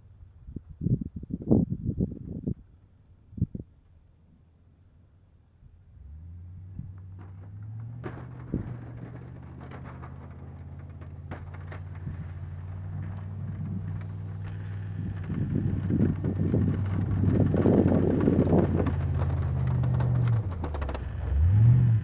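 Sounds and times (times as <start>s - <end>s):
truck engine under load: 5.9s - 22.0s.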